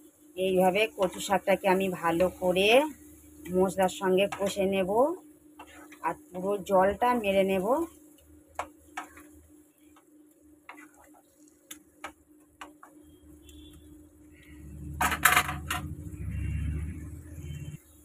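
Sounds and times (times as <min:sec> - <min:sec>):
faint steady hum: 0:00.0 - 0:18.0
spatula scraping a pan: 0:10.7 - 0:11.3
low rumble: 0:15.7 - 0:17.7.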